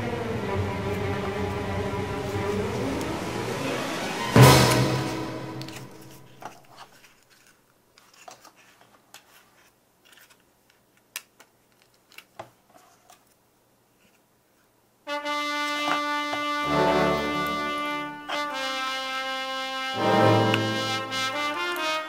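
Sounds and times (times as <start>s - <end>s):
music with held chords: 0.0s - 6.0s, 15.1s - 22.0s
paper pieces clicking and tapping: 5.6s - 13.4s, 21.4s - 22.0s.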